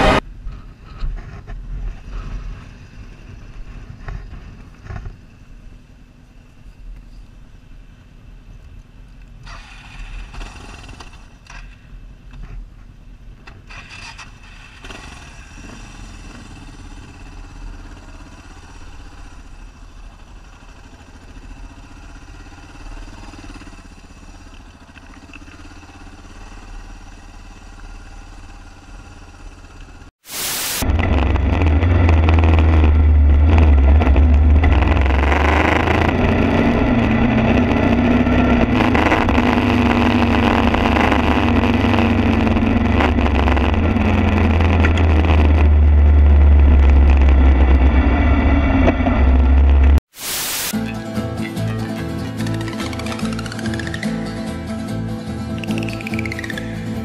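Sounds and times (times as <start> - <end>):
rushing noise: 0.0 - 0.5, 30.2 - 50.8
motorcycle engine running: 0.0 - 5.8, 14.6 - 30.1, 30.8 - 50.0, 50.8 - 57.0.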